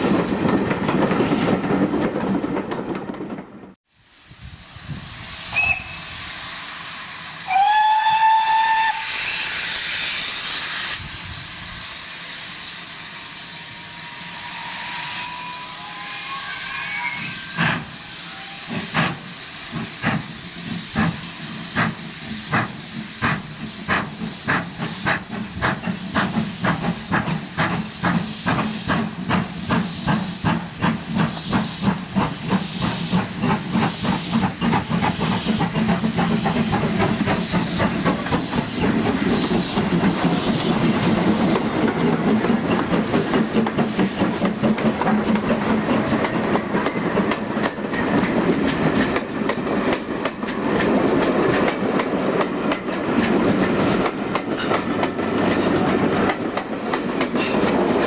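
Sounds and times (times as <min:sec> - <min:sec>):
train wheels clattering over rails: 0:00.0 - 0:03.8, 0:18.7 - 0:58.0
steam locomotive exhaust chuffing: 0:04.3 - 0:58.0.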